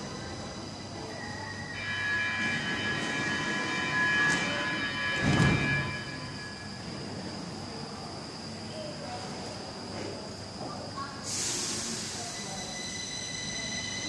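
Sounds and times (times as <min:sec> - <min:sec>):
train multi-tone whine: 0:00.0 - 0:14.0
loud hiss: 0:11.2 - 0:12.7.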